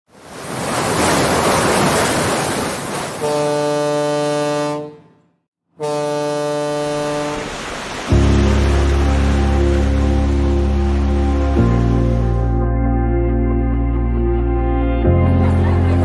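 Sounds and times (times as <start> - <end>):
ocean surf washing: 0.1 - 4.4, 6.1 - 12.4
deep ship's horn blasts: 3.2 - 13.6
music with heavy bass: 8.1 - 16.0.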